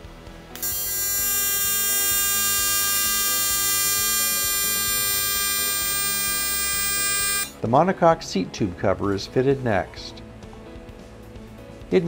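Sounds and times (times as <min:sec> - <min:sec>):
welding arc buzzing: 0:00.5 - 0:07.6.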